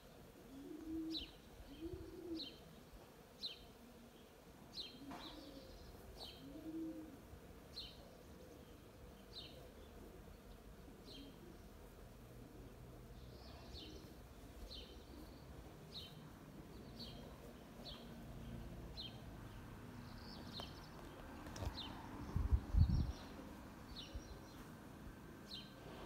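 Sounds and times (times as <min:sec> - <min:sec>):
dove cooing: 0:00.0 - 0:02.8, 0:04.8 - 0:16.3
songbird chirping: 0:00.0 - 0:26.0.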